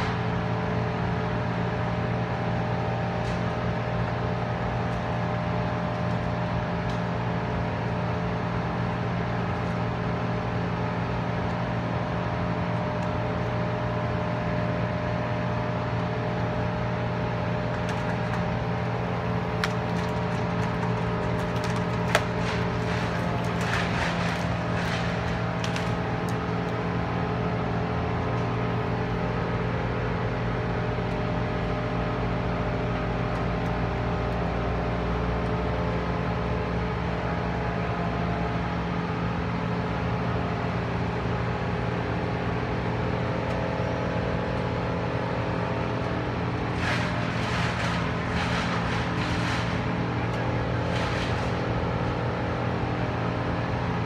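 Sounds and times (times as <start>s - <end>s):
crane engine running: 0.0s - 54.0s
crackling noise: 17.7s - 26.7s, 46.6s - 52.3s.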